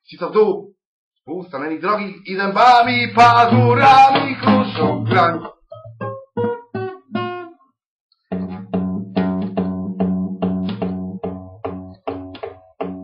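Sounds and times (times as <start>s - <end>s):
acoustic guitar strumming: 2.8s - 7.5s, 8.3s - 13.0s.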